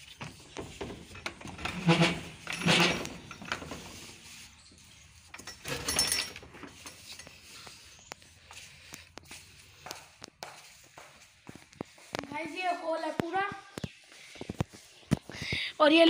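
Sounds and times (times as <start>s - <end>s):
metal bolt clinking and scraping: 0.0s - 7.8s.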